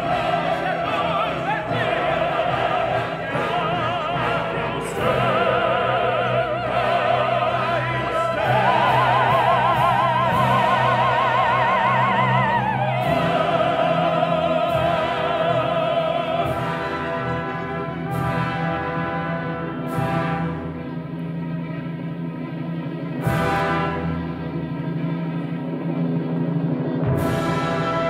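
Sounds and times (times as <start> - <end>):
operatic soprano singing: 0.0 - 17.5
orchestra playing: 0.0 - 28.0.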